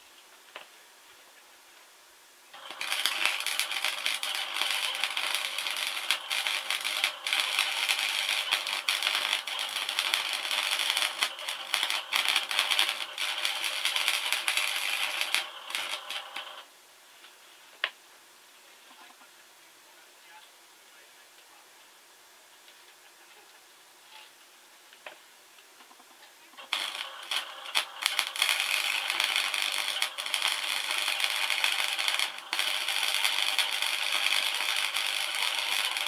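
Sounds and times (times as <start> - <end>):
welder arc crackling: 2.5 - 16.7, 26.6 - 36.0.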